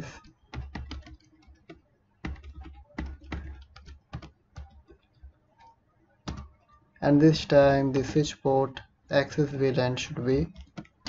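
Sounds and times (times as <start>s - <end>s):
typing on computer keyboard: 0.0s - 6.6s, 10.4s - 11.0s.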